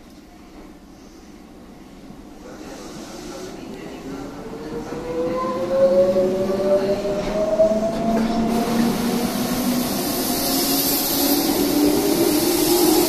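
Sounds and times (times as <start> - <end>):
train running noise hiss: 0.7 - 4.5, 8.0 - 13.0.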